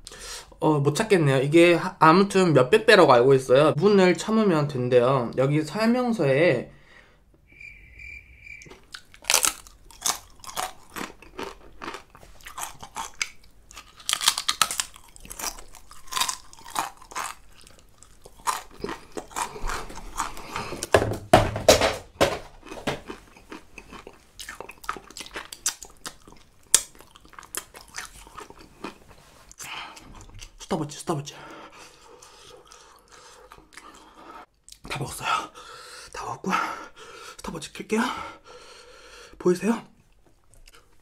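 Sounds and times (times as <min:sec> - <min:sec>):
chewing and crunching chip: 0:08.7 - 0:20.8, 0:22.6 - 0:30.8, 0:31.8 - 0:34.8, 0:40.1 - 0:41.0.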